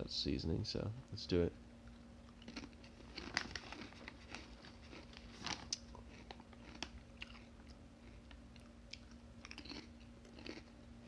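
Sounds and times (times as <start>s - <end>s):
faint steady hum: 0.0s - 11.0s
potato chips crunching: 2.2s - 10.9s
chip bag crinkling: 2.4s - 8.3s, 9.0s - 10.7s.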